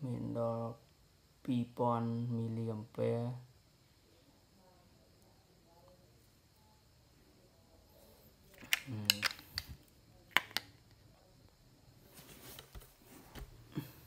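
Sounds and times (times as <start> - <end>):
battery pack clicking into device: 8.6 - 9.7.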